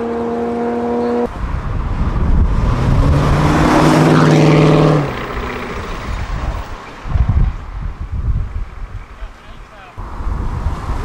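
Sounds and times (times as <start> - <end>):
car engine accelerating hard: 2.0 - 6.5.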